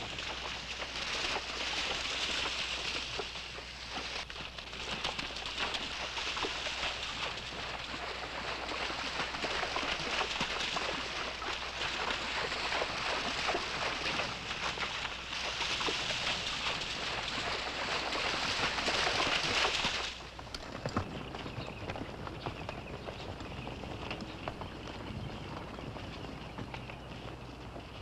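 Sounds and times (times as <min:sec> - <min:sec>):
horses splashing through stream: 0:00.0 - 0:28.0.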